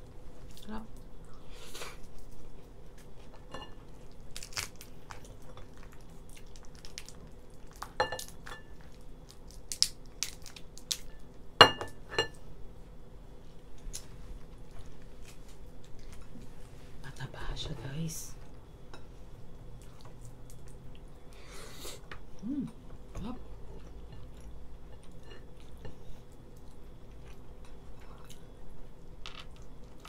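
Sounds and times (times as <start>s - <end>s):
lobster shell cracking: 4.3s - 4.9s, 9.3s - 11.1s.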